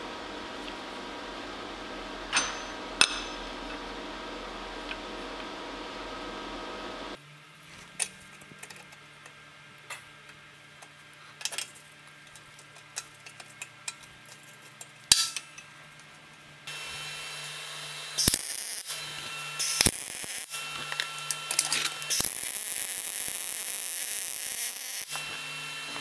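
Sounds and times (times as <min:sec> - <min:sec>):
loud metal clank: 0:02.3 - 0:03.5
welding hiss: 0:16.7 - 0:26.0
welding cracks: 0:18.2 - 0:25.4.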